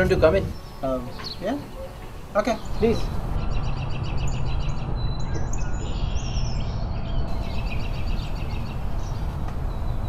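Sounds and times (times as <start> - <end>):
small birds chirping: 0.0 - 10.0
steady low rumble: 2.2 - 10.0.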